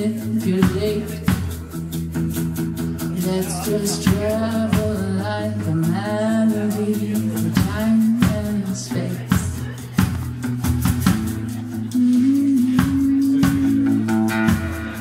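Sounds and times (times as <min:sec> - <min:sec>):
woman singing: 0:00.0 - 0:01.6, 0:03.1 - 0:09.8, 0:11.9 - 0:14.6
strummed acoustic guitar: 0:00.0 - 0:15.0
drum strikes: 0:09.3 - 0:15.0.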